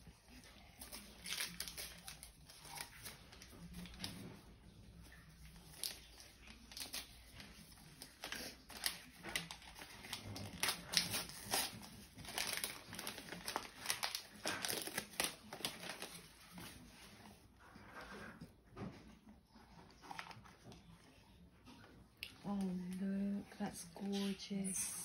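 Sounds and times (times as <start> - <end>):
wrapping paper crinkling and tearing: 0.0 - 17.5.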